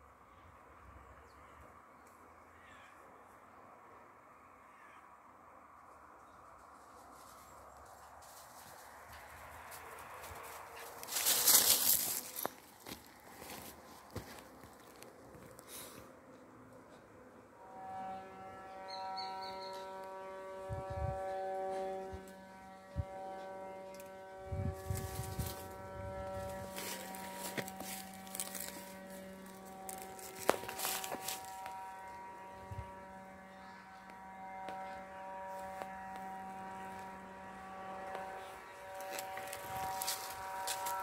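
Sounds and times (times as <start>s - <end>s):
droning hum: 0.0s - 41.0s
dry leaves rustling: 6.8s - 16.0s, 24.7s - 32.3s, 38.7s - 41.0s.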